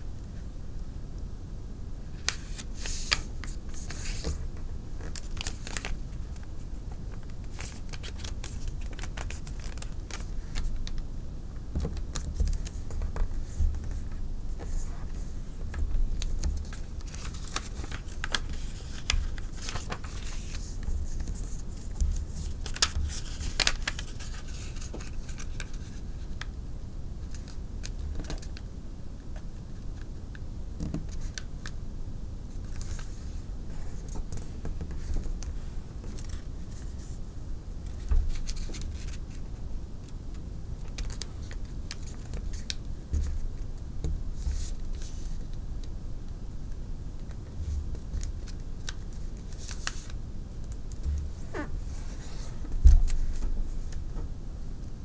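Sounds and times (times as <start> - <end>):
paper rustling and creasing: 2.1 - 11.0, 11.8 - 26.4, 32.5 - 37.2, 37.8 - 39.6, 40.8 - 43.7, 44.4 - 45.5, 47.2 - 54.1.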